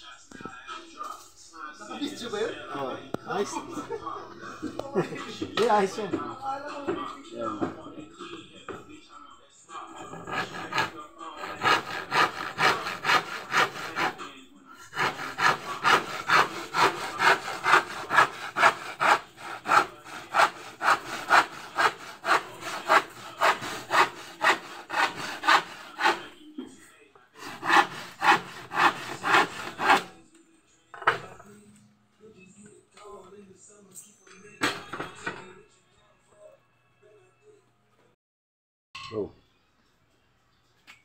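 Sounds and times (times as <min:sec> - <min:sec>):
handsaw rasping through wood: 0:09.9 - 0:26.4, 0:27.4 - 0:30.2.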